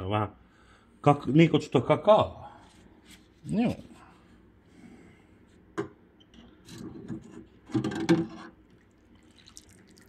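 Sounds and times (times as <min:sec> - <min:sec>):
water sloshing and dripping: 0:08.6 - 0:10.0.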